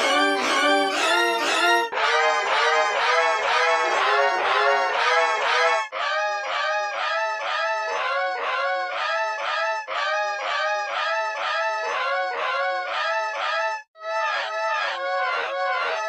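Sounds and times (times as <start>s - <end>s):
distorted crying wails: 5.9s - 16.0s.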